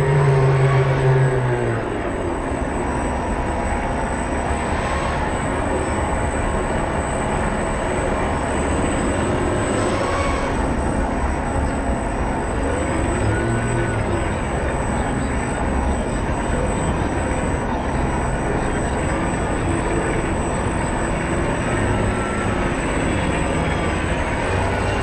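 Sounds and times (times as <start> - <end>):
model boat motor drone: 0.0 - 25.0
thin high whine: 0.0 - 25.0.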